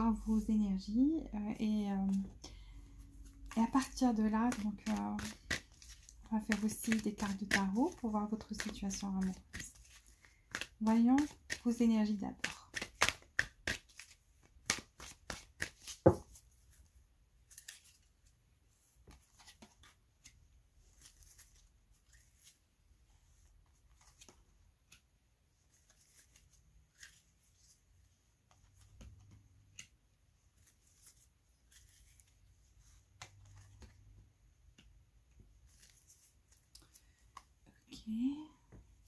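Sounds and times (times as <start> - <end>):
cards laid on cloth mat: 2.0 - 11.8, 12.4 - 37.8
cards being shuffled: 3.1 - 18.4, 19.0 - 22.6, 23.3 - 27.8, 28.4 - 37.6
hand tapping deck of cards: 10.3 - 11.7, 12.4 - 16.4.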